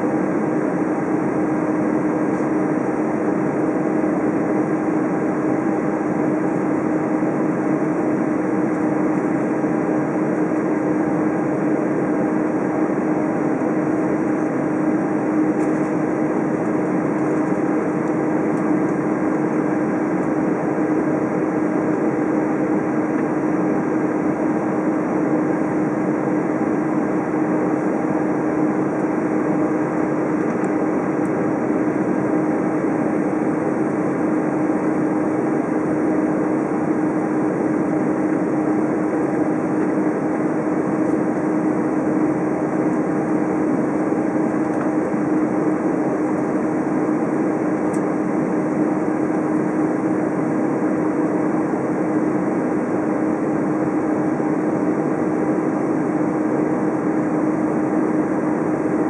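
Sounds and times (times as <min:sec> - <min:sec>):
airplane cabin engine rush: 0:00.0 - 0:59.0
constant low hum: 0:00.0 - 0:59.0.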